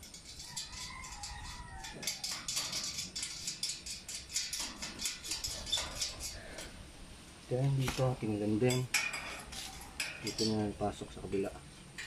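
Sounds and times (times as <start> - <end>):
metal parts clicking and tapping: 0.0 - 6.7.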